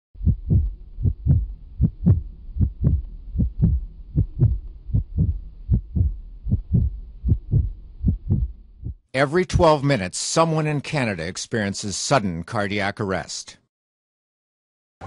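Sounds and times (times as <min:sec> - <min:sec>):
heartbeat thumps: 0:00.2 - 0:09.0.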